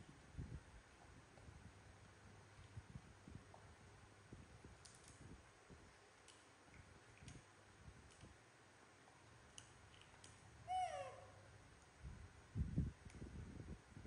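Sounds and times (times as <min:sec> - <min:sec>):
faint sharp clicks of chewing: 0:06.2 - 0:08.3.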